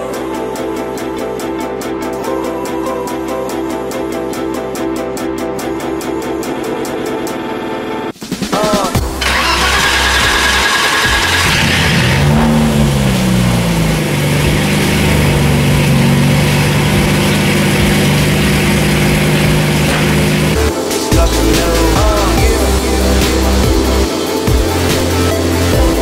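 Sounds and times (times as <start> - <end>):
car engine starting and idling: 9.0 - 26.0.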